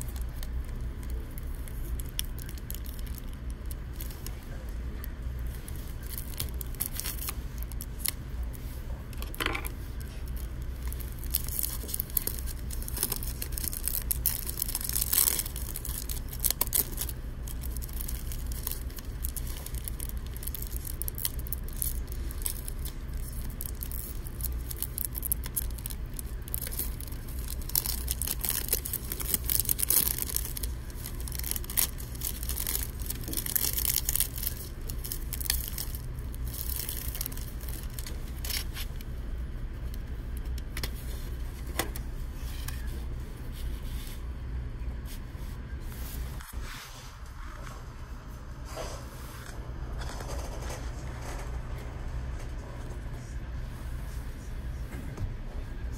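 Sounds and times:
plastic film crinkling: 0:00.0 - 0:42.0
steady low hum: 0:00.0 - 0:55.9.

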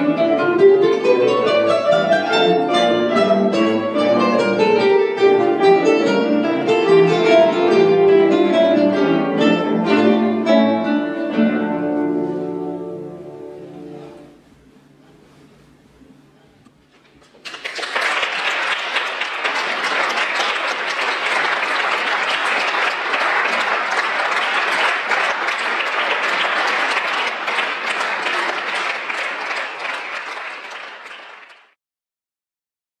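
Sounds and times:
audience applauding: 0:17.2 - 0:31.8.

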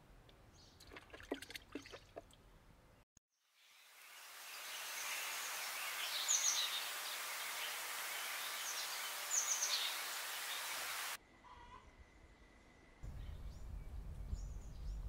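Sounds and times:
steady hiss: 0:03.8 - 0:11.2.

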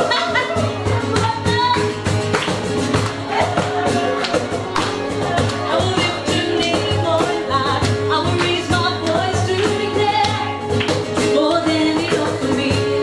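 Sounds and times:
woman singing: 0:00.0 - 0:02.1, 0:04.8 - 0:13.0
cajon beat: 0:00.0 - 0:13.0
strummed acoustic guitar: 0:00.0 - 0:13.0.

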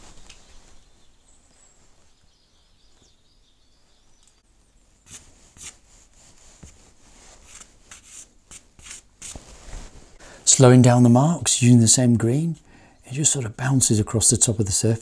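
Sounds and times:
pastel scraping on textured surface: 0:05.0 - 0:10.2.

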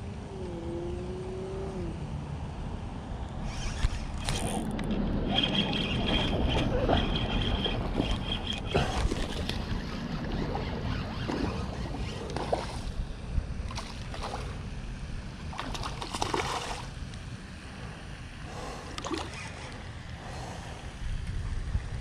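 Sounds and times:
wind rumble on microphone: 0:00.0 - 0:22.0
fish splashing at water surface: 0:15.5 - 0:17.0.

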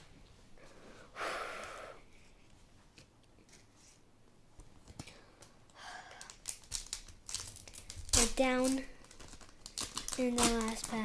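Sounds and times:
foil pack rustling and clicks: 0:06.2 - 0:11.0.

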